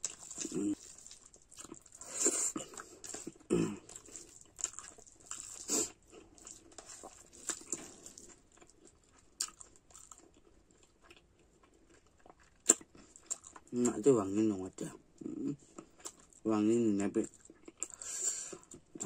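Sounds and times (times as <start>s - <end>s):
person chewing and lip-smacking: 0.0s - 14.0s, 15.7s - 16.4s.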